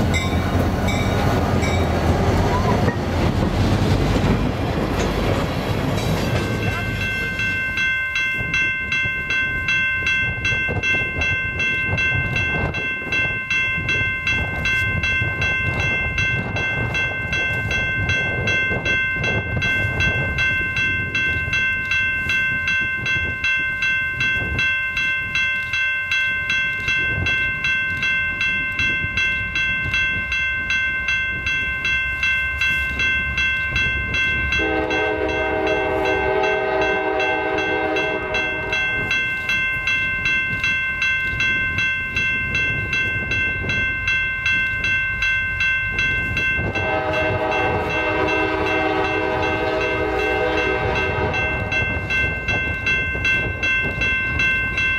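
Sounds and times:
crossing bell ringing: 0.0 - 54.9
locomotive air horn: 34.6 - 38.8, 46.7 - 51.8.

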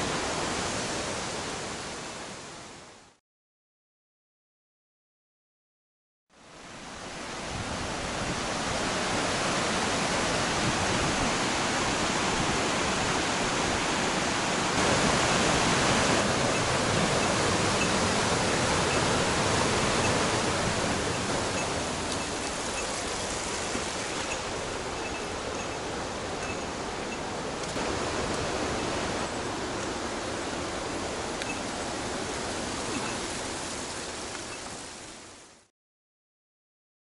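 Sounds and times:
rocky river rushing: 7.1 - 35.5.

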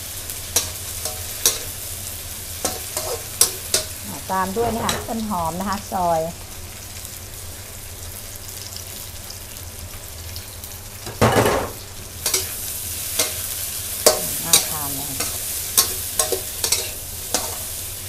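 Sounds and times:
pork sizzling in oil: 0.0 - 18.0
metal spatula scraping wok: 2.7 - 5.2, 12.2 - 18.0.

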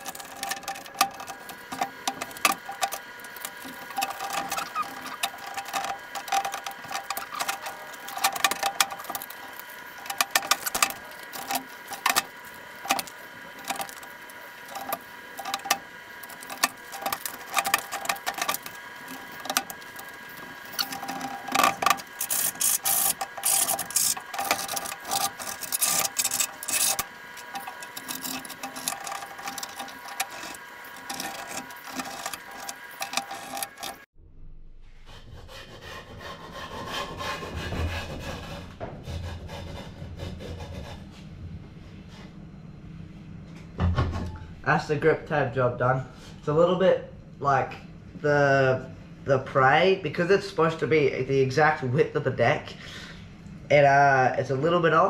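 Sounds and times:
sped-up clicks and rustles: 0.0 - 34.1
steady high whine: 0.0 - 35.0.

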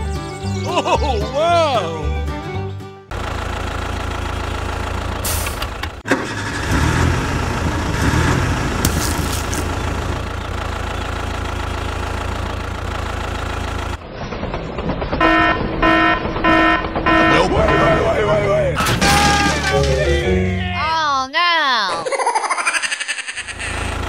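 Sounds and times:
tractor engine running: 3.1 - 20.6, 23.4 - 24.0.

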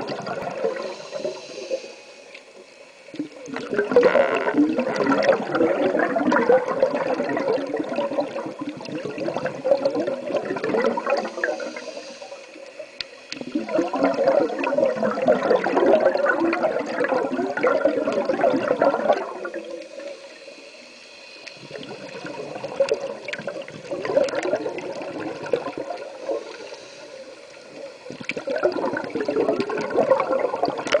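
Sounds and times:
underwater bubbles gurgling: 0.0 - 31.0.

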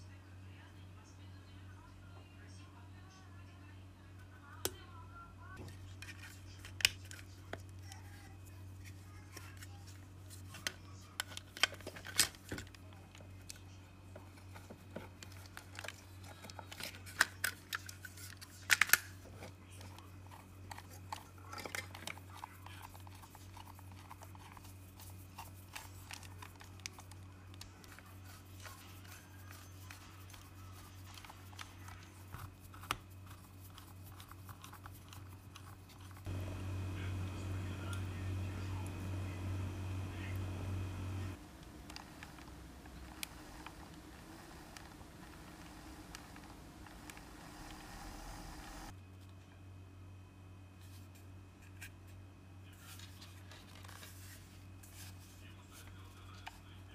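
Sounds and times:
steady low hum: 30.3 - 49.0.

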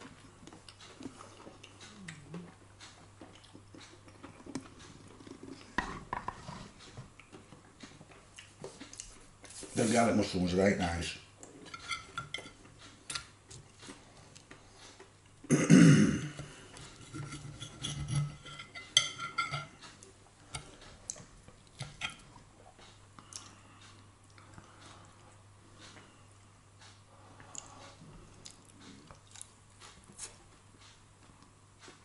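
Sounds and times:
cutlery clicking and scraping on plate: 11.7 - 13.3, 17.0 - 19.9, 21.8 - 22.2.

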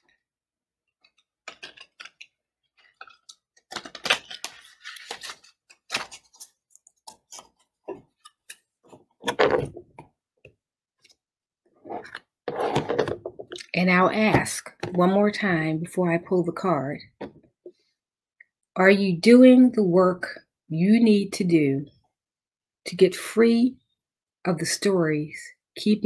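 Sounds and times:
cards being shuffled: 1.1 - 8.6.

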